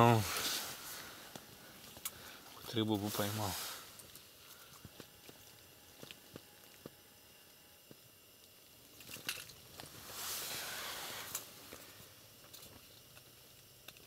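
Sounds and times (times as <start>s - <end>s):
clothing rustling: 9.7s - 12.0s.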